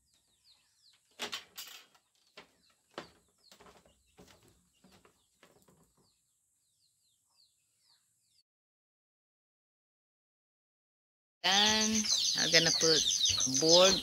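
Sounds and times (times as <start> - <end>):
birds chirping: 0.0 - 8.4, 11.4 - 14.0.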